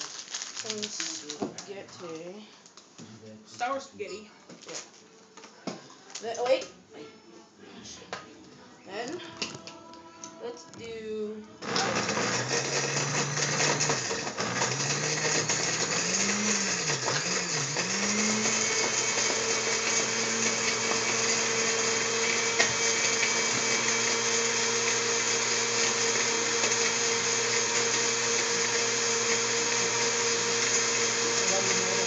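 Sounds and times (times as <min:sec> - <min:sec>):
blender running: 0:11.6 - 0:32.0.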